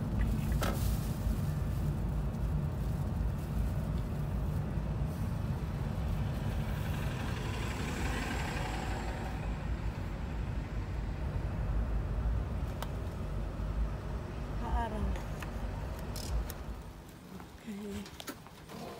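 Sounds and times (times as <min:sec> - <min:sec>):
traffic rumble: 0:00.0 - 0:18.9
vehicle passing hiss: 0:00.5 - 0:14.6.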